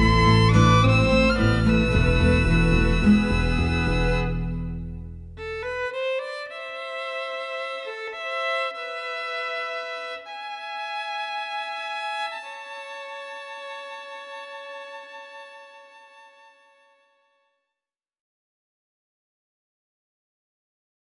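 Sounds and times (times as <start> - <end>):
deeper accompanying notes: 0.0 - 6.0
solo violin slow melody: 0.0 - 17.6.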